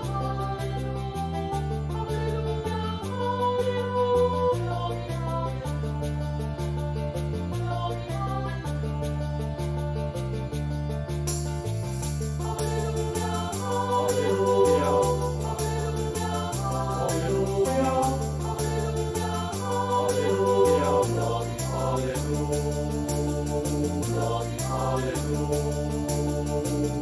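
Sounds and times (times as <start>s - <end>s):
sampled choir singing: 0.0s - 5.6s, 12.3s - 27.0s
stepping bass line: 11.3s - 27.0s
steady percussion beat: 12.4s - 27.0s.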